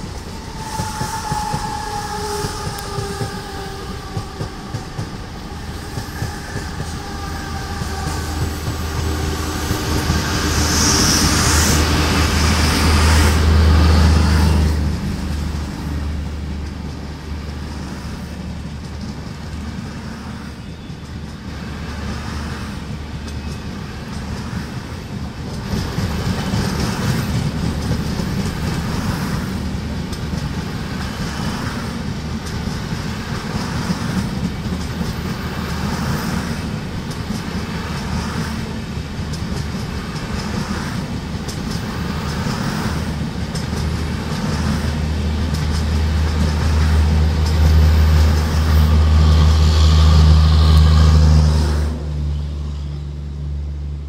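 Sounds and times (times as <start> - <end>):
low diesel drone: 0.0 - 20.7, 35.2 - 54.0
train wheels clattering over rail joints: 0.0 - 51.4.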